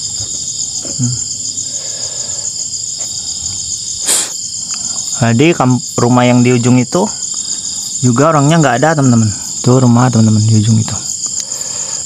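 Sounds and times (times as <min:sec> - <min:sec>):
insect chorus trilling: 0:00.0 - 0:12.0
short sharp noise: 0:04.0 - 0:04.4.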